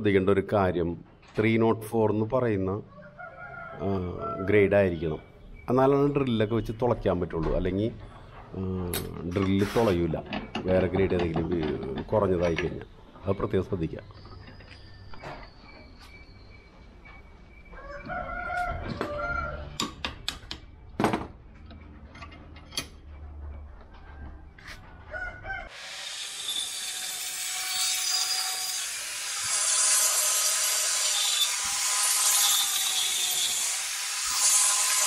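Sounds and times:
metal knocks and clanks: 0:06.9 - 0:13.0, 0:18.8 - 0:25.1
angle grinder cutting steel: 0:25.7 - 0:35.0.

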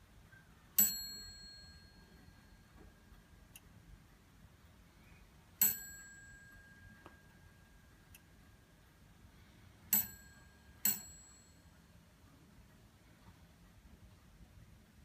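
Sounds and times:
clock striking bell: 0:00.8 - 0:02.2.

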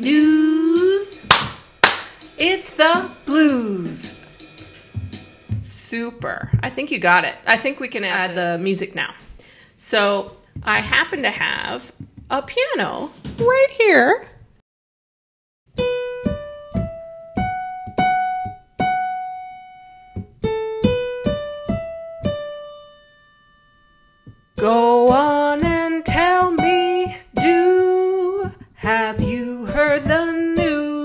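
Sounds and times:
electronic keyboard piano melody: 0:15.7 - 0:28.6
woman singing with vibrato: 0:24.6 - 0:31.0.

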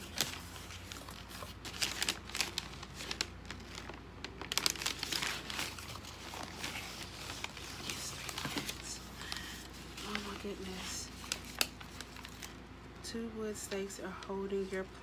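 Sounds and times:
packing material crinkling: 0:00.0 - 0:12.6.

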